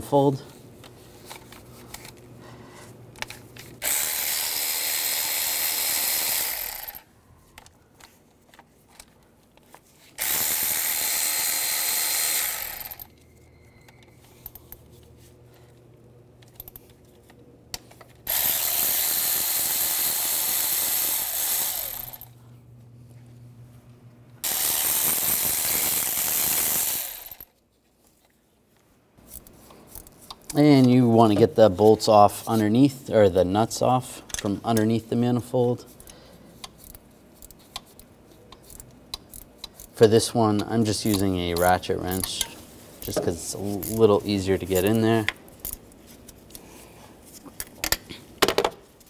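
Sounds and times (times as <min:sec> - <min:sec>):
electric ratchet spinning nuts: 0:03.8 - 0:07.1, 0:10.2 - 0:13.2, 0:18.2 - 0:22.4, 0:24.4 - 0:27.5.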